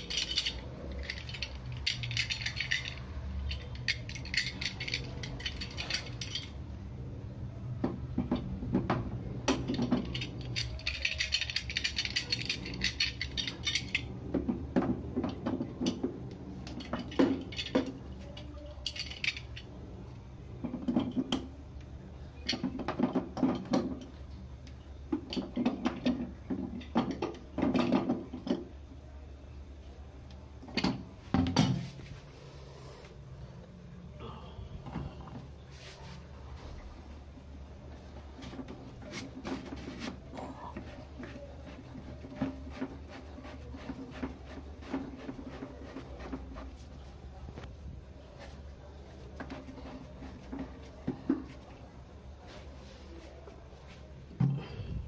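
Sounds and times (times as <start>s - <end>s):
cistern parts clattering: 0.0s - 6.8s, 7.8s - 19.8s, 30.6s - 32.2s, 37.3s - 47.7s.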